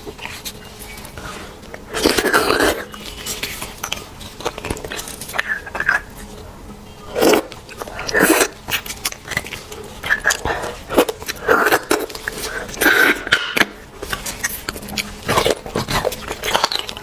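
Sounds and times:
chewing: 0.0s - 6.4s, 7.0s - 17.0s
wet sucking of marrow: 1.2s - 3.5s.

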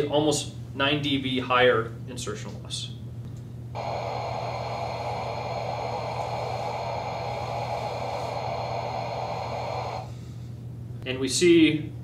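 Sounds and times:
low steady hum: 0.0s - 12.0s
loudspeaker noise hiss: 3.8s - 10.1s.

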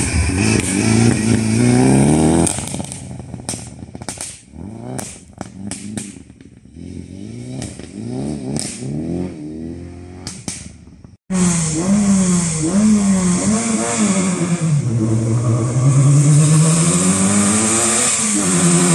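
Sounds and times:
rally car engine revving: 0.0s - 10.7s, 11.3s - 18.9s
sharp cracks: 2.4s - 6.6s, 7.6s - 8.9s, 10.2s - 10.9s.

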